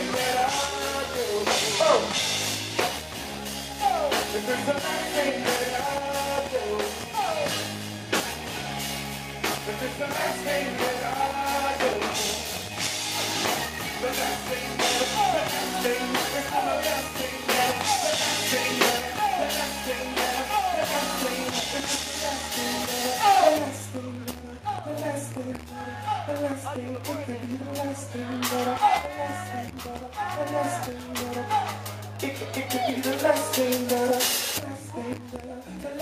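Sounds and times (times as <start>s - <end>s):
man singing: 0.0s - 2.9s, 3.7s - 7.8s, 9.4s - 36.0s
electric guitar: 0.0s - 24.5s
drum kit: 0.0s - 36.0s.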